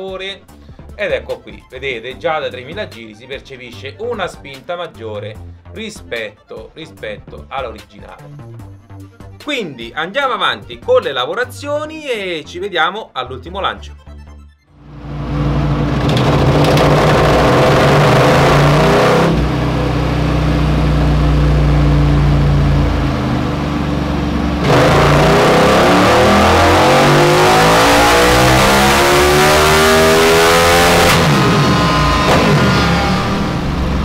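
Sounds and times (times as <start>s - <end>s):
motorcycle engine revving: 14.8s - 34.0s.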